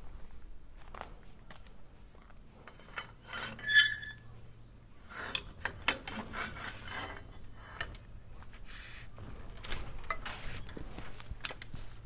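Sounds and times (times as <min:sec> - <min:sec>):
metal gate latch scraping: 0:02.7 - 0:04.3, 0:05.0 - 0:08.2, 0:10.0 - 0:10.7.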